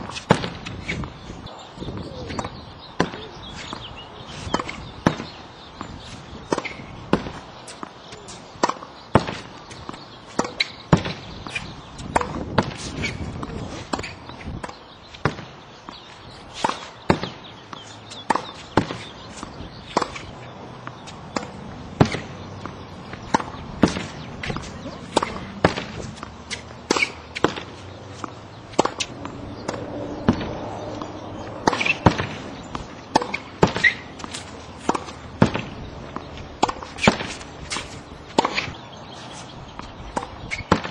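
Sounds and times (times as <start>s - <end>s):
tennis ball hit off racket: 0.0s - 1.2s, 4.5s - 40.9s
ball bouncing on hard court: 8.1s - 15.5s, 16.7s - 38.8s, 39.8s - 40.9s
ball hitting practice backboard: 20.9s - 38.8s.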